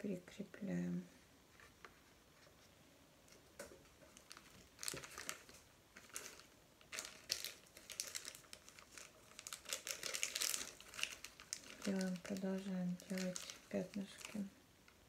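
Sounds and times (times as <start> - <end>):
plastic wrapper crinkling: 3.6 - 15.0.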